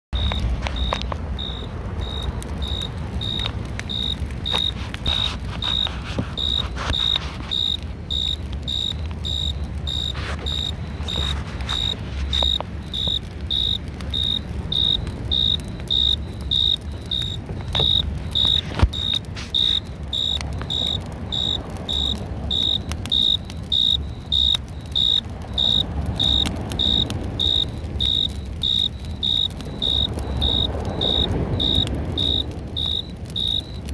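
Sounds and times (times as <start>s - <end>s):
cricket chirping: 0.2s - 33.9s
low steady rumble: 0.2s - 33.9s.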